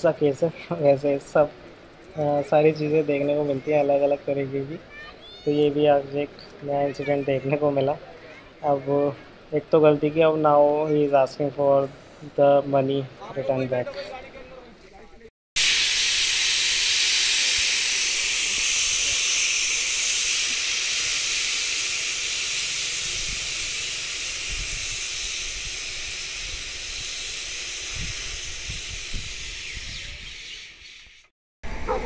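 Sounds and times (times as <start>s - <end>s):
compressed air hissing from brakes: 15.6s - 30.3s.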